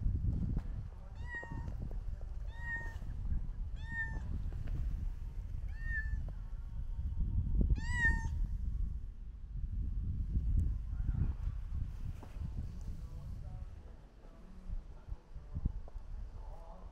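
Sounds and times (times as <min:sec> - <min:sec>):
cat meowing: 0:01.1 - 0:01.8, 0:02.4 - 0:03.1, 0:03.8 - 0:04.3, 0:05.7 - 0:06.2, 0:07.8 - 0:08.4.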